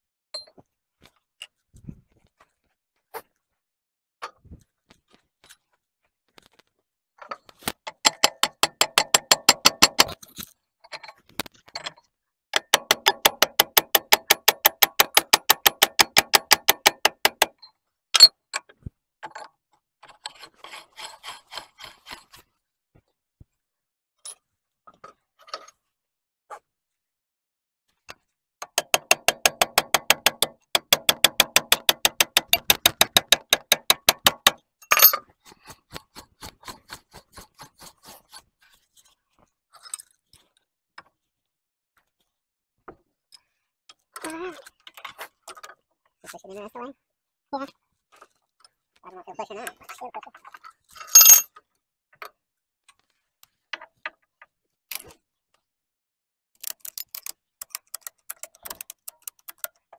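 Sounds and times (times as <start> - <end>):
hammer tapping on metal: 8.0 - 10.2, 12.6 - 17.5, 28.6 - 35.1.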